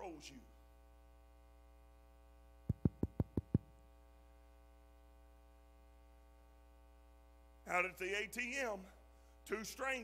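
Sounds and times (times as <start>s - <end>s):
steady electrical hum: 0.0s - 10.0s
quick sharp taps: 2.7s - 3.7s.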